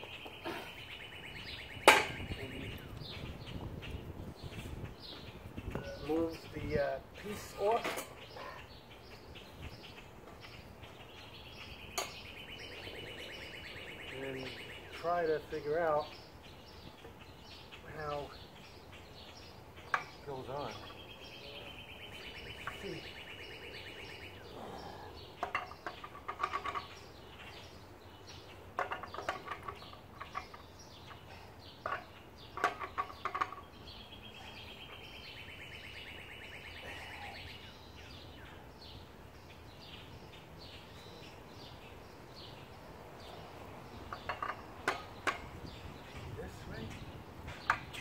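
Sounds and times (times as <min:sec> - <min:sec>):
bird trilling: 0:20.6 - 0:25.9, 0:33.2 - 0:38.6.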